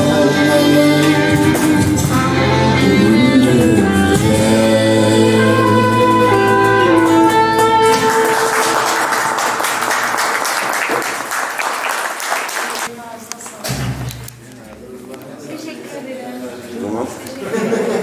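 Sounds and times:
person singing: 0.0s - 9.9s
trumpet: 0.0s - 9.9s
acoustic band playing: 0.0s - 11.2s
people clapping: 7.7s - 13.6s.

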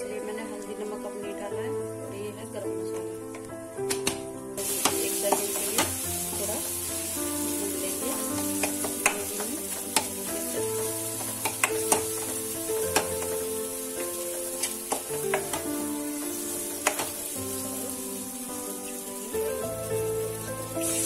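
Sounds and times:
food sizzling in oil: 4.6s - 21.0s.

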